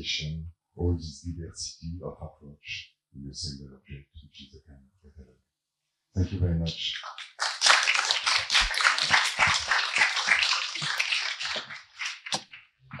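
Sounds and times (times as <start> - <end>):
audience applauding: 6.9 - 12.4.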